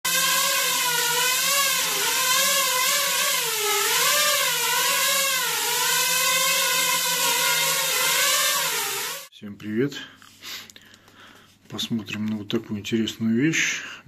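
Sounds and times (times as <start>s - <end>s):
quadcopter motors whining: 0.0s - 9.3s.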